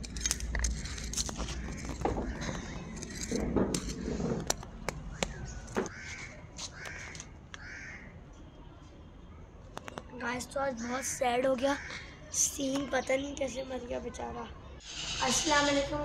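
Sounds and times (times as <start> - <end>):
birds calling: 0.6 - 8.1, 10.4 - 13.7.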